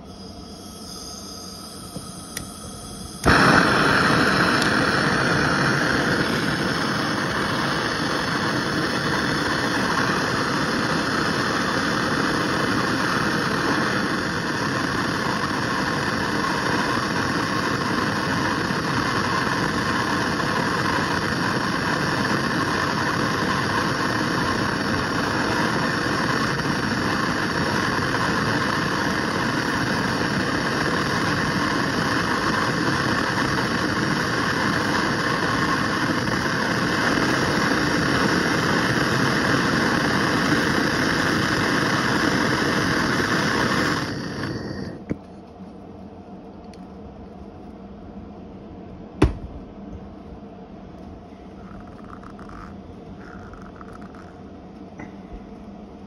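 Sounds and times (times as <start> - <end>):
gas torch flame hissing: 0.0 - 45.3, 51.3 - 55.8.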